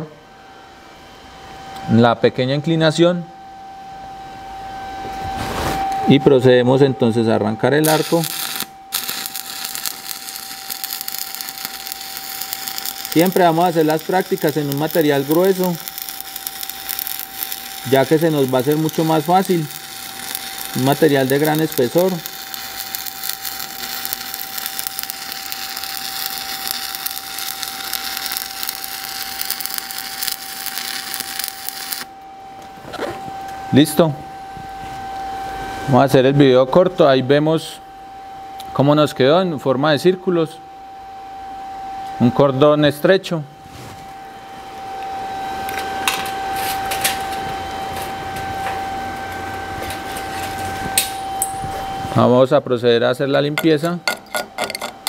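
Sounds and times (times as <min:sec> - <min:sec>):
machinery hiss and whine: 0:00.0 - 0:55.0
welding arc crackling: 0:07.8 - 0:32.1, 0:53.5 - 0:55.0.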